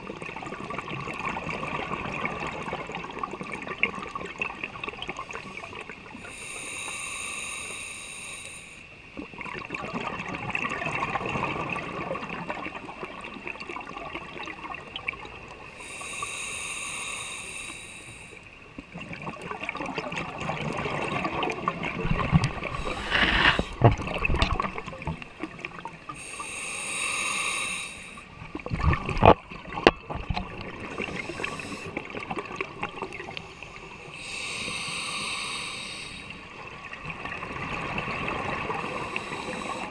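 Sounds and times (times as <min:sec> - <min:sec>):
hissing inhale through regulator: 0:06.2 - 0:09.0, 0:15.7 - 0:18.5, 0:22.6 - 0:23.9, 0:26.1 - 0:28.4, 0:30.8 - 0:32.2, 0:33.4 - 0:36.6, 0:38.7 - 0:39.9
exhaled bubbles rushing: 0:19.1 - 0:25.9, 0:28.6 - 0:33.3.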